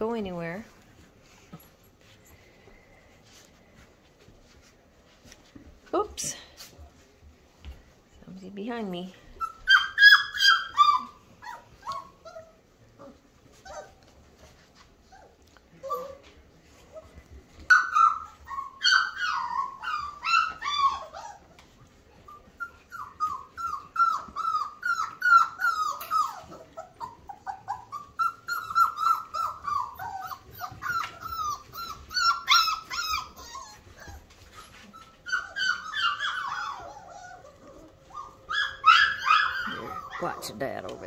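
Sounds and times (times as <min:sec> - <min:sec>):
puppy whining: 0:09.2 - 0:41.0.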